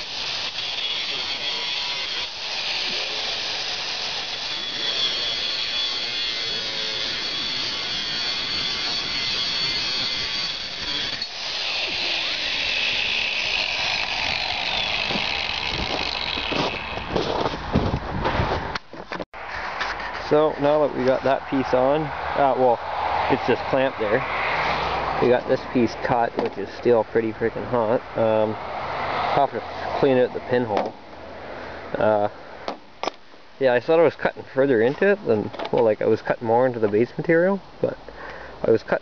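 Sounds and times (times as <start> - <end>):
angle grinder cutting steel: 0.0 - 17.6.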